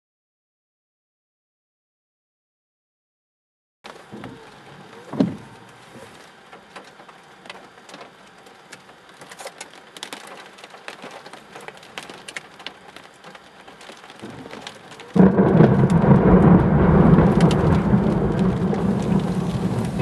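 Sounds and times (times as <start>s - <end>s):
light rain hiss: 3.8s - 20.0s
raindrops ticking: 3.9s - 20.0s.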